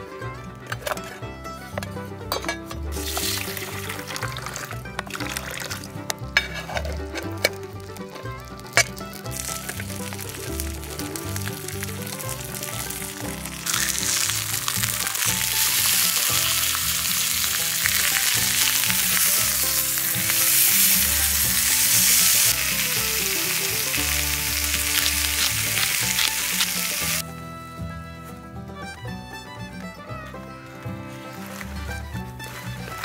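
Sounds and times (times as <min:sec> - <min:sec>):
background music: 0:00.0 - 0:33.0
meat sizzling in frying pan: 0:03.0 - 0:04.3, 0:08.6 - 0:27.2.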